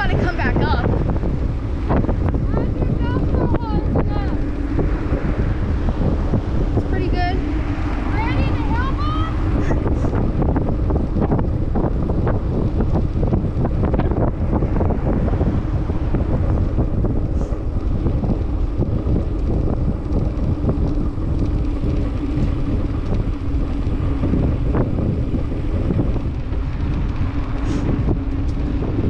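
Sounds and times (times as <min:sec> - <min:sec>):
wind buffeting microphone: 0:00.0 - 0:29.0
bike clicks and rattles: 0:09.6 - 0:29.0.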